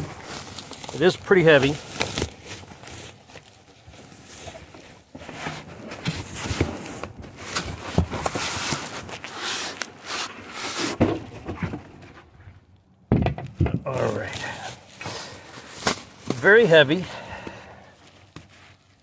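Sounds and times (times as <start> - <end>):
bubble wrap crinkling: 0.0 - 5.2, 6.2 - 11.0, 13.9 - 17.0, 17.9 - 19.0.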